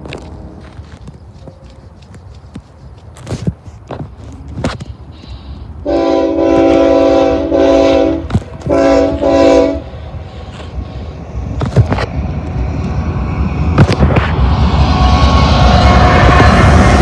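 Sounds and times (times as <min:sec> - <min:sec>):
train engines and wheels rumbling: 0:00.0 - 0:17.0
locomotive air horn blasts: 0:05.8 - 0:10.0.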